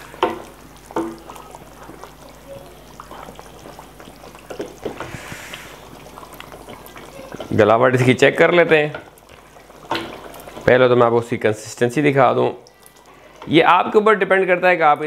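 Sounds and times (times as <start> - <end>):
liquid sloshing: 0.0 - 11.9
ladle stirring gravy in pot: 0.0 - 13.6.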